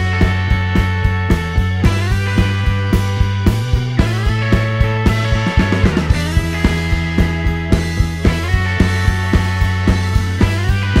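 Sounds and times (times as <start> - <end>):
rock music with steady beat: 0.0 - 11.0.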